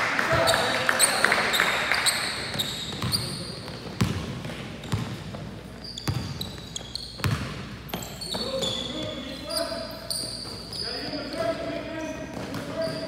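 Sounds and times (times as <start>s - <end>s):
sneaker squeaks: 0.3s - 13.0s
basketball bouncing on wooden floor: 4.0s - 5.4s, 6.0s - 6.6s, 7.2s - 8.5s.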